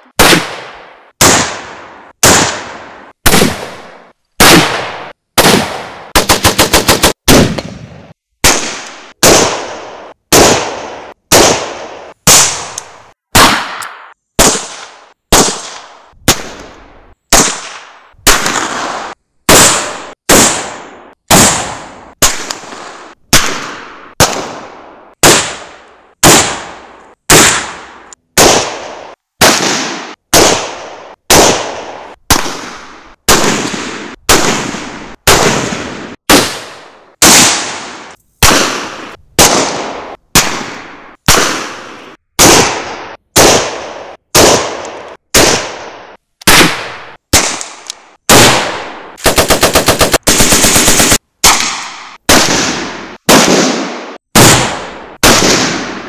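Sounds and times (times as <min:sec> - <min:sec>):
rifle gunshots: 0:00.2 - 0:56.0
machine gun automatic burst: 0:49.2 - 0:51.2.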